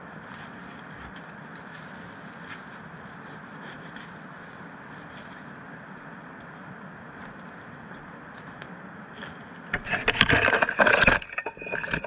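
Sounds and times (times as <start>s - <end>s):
crunching and cracking: 9.2s - 12.0s.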